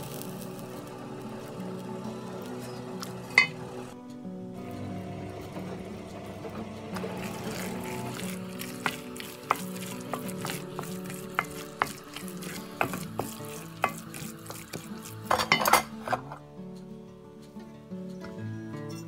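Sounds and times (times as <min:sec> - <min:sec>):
background music: 0:00.0 - 0:19.0
wooden spoon stirring risotto: 0:07.0 - 0:15.6.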